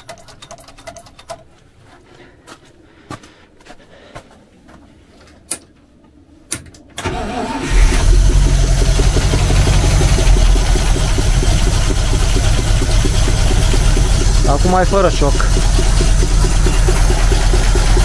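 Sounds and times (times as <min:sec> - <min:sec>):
engine cranking: 0:07.0 - 0:18.0
engine running unevenly: 0:07.2 - 0:18.0
sharp knocks: 0:08.2 - 0:18.0.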